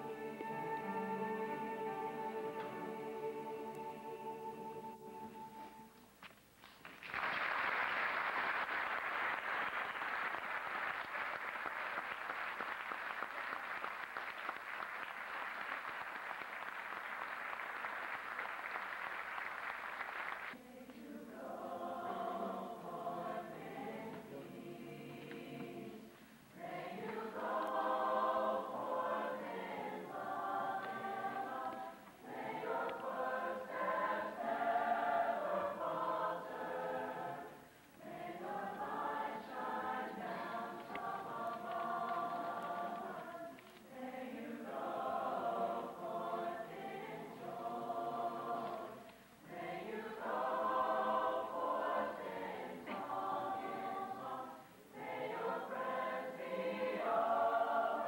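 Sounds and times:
mixed choir singing: 0.0s - 6.0s, 20.5s - 58.0s.

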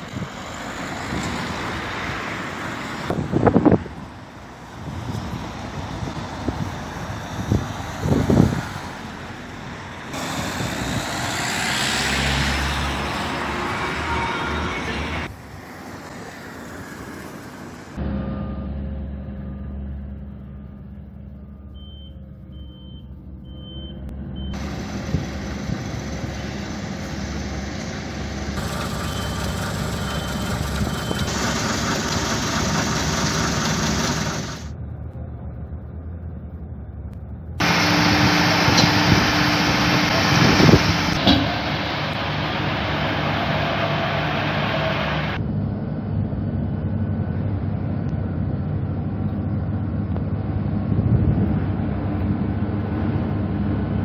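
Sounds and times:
road roller engine running: 0.0s - 15.6s, 17.9s - 54.0s
cars and bus driving past: 0.0s - 54.0s
roadworks machinery engine hum: 0.0s - 54.0s
reversing beeps: 18.1s - 19.8s, 21.4s - 24.6s, 28.9s - 31.4s.

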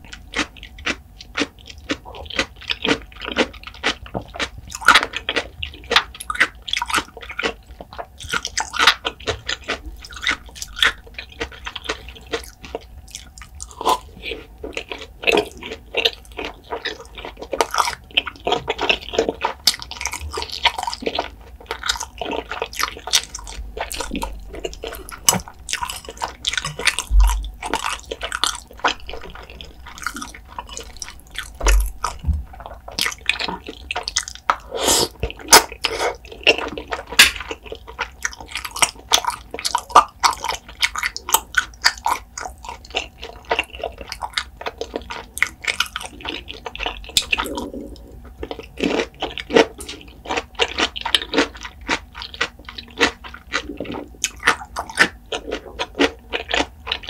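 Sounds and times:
wet chewing and mouth clicks: 0.0s - 57.0s
noodle slurp: 22.3s - 37.2s.

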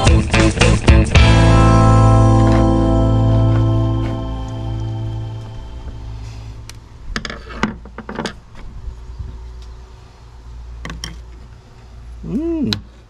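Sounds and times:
low hum: 0.0s - 12.5s.

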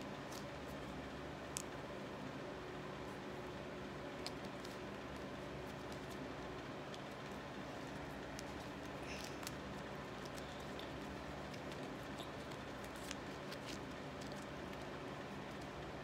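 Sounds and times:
tape rustling and clicking: 4.1s - 16.0s.

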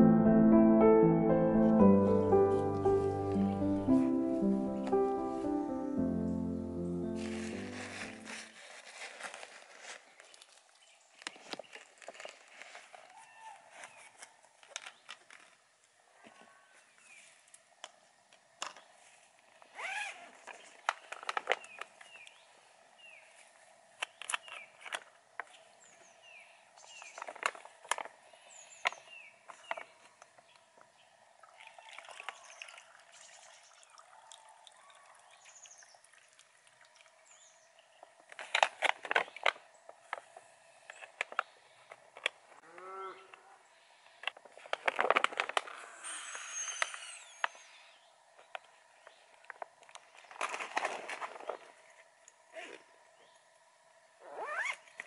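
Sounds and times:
thin plastic crinkling: 7.1s - 15.6s, 44.3s - 45.8s, 49.4s - 51.8s
small birds chirping: 28.3s - 34.0s, 46.2s - 49.4s.

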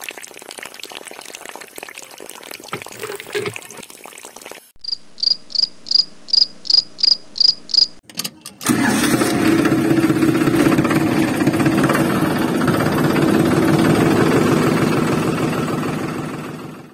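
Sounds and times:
crickets chirping: 4.8s - 8.0s
motor running loudly: 8.7s - 16.9s.

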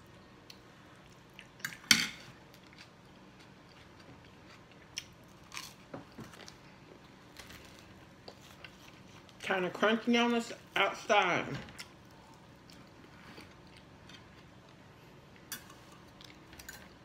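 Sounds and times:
crunching of eating bread: 2.4s - 9.4s
cutlery clinking on a plate: 16.6s - 17.0s.

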